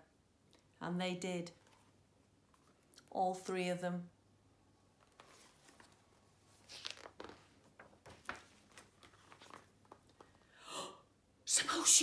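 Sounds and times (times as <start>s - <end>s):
book pages turning: 1.6s - 2.9s, 5.0s - 10.4s.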